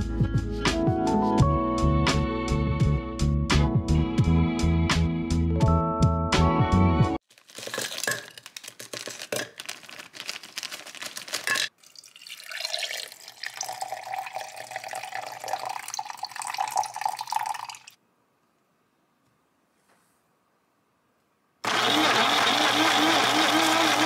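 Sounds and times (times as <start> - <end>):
frozen berries rattling into blender: 7.3 - 11.7
water pouring into cup: 11.5 - 18.0.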